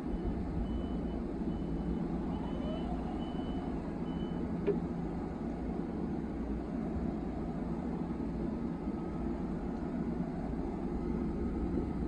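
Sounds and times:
electric train humming: 0.0 - 12.0
high electronic warning beep: 0.6 - 4.4.

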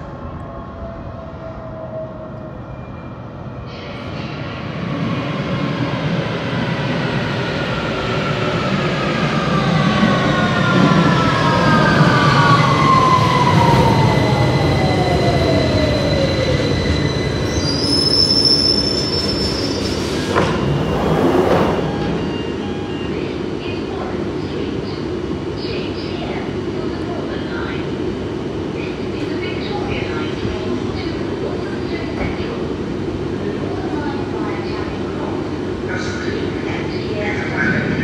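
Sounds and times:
high-pitched brake squeal: 15.0 - 21.2.

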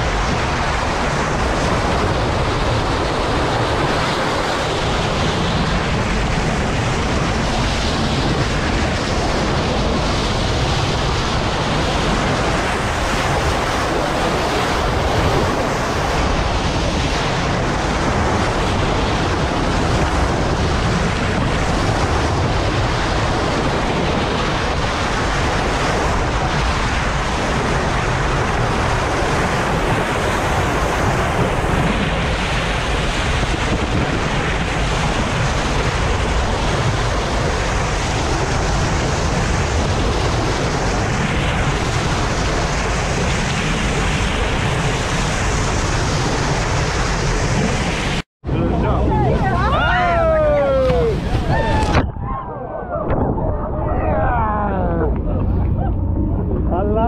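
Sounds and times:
bow wave splashing along hull: 0.0 - 57.0
wind buffeting microphone: 0.0 - 57.0.

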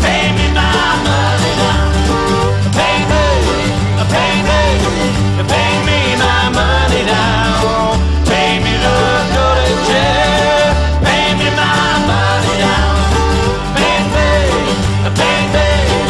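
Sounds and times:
upbeat bluegrass folk song: 0.0 - 16.0.

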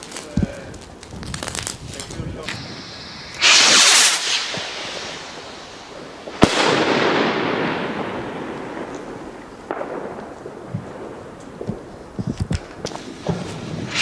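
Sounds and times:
rocket hiss: 0.0 - 10.2, 12.2 - 14.0
firework shell bang: 2.5 - 10.2.

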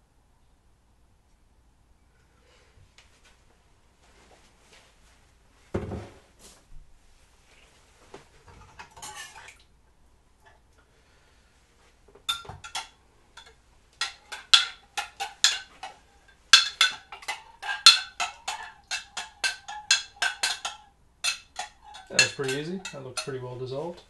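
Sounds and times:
metal spoon clinking against glass: 12.3 - 23.4.

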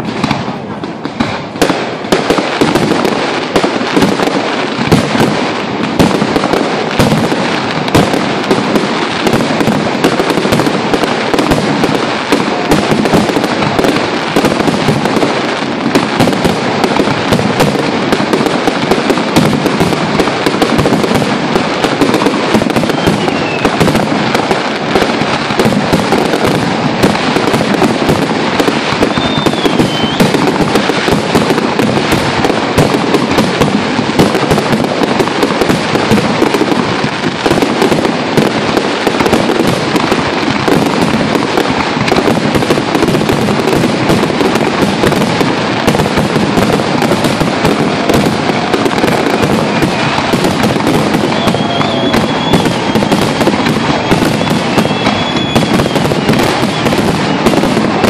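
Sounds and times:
fireworks bursting and crackling: 0.0 - 58.0
firework whistles: 16.1 - 33.2, 46.6 - 58.0.

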